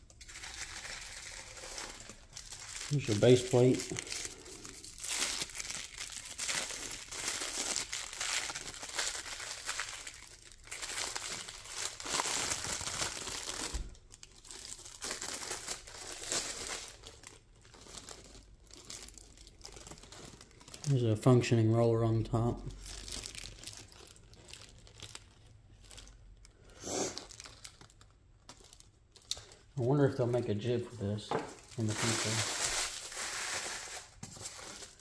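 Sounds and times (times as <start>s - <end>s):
packaging wrapper crinkling: 0.0s - 21.2s, 22.7s - 30.4s, 31.5s - 35.0s.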